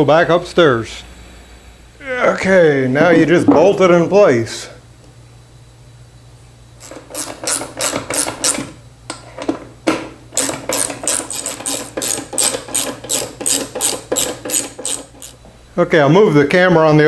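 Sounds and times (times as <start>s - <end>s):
socket ratchet clicking: 10.4s - 15.4s.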